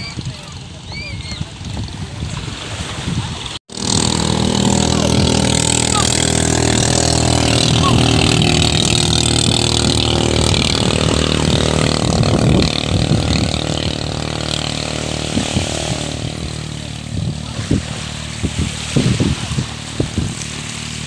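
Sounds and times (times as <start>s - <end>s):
motorboat engine drone: 0.0s - 21.0s
low thumps: 3.7s - 21.0s.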